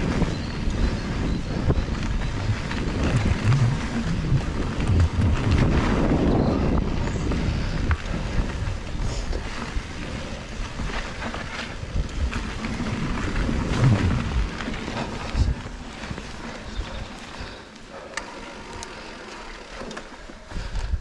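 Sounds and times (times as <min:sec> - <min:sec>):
bike knocking and rattling: 0:00.0 - 0:21.0
bike tyres rumbling on dirt: 0:00.0 - 0:21.0.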